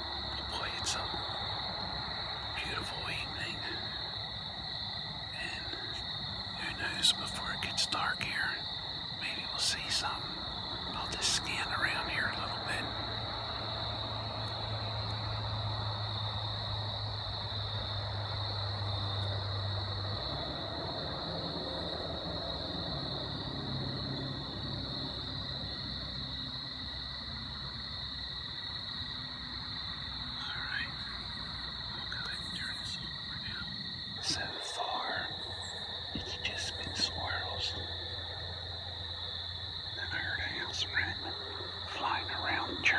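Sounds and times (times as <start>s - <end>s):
insect chorus: 0.0s - 42.9s
low steady hum: 30.0s - 42.9s.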